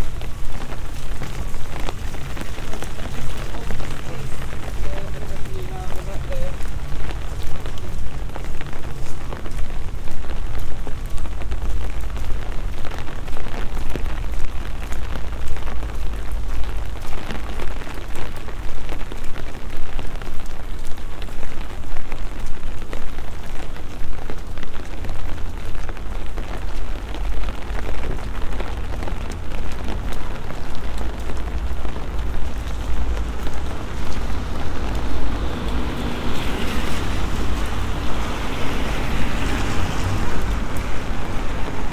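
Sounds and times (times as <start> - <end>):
rain on wet paving: 0.0 - 41.9.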